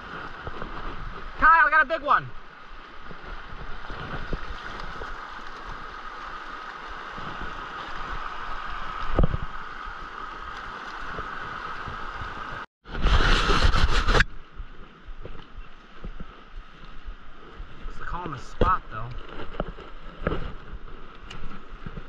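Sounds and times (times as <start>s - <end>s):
creek water running over rocks: 0.0s - 12.7s, 14.2s - 22.0s.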